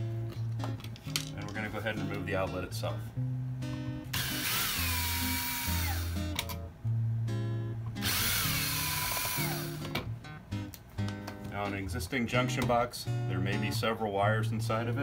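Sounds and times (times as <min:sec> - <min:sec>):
acoustic guitar music: 0:00.0 - 0:15.0
cordless drill motor whine: 0:04.2 - 0:06.2, 0:08.0 - 0:09.8.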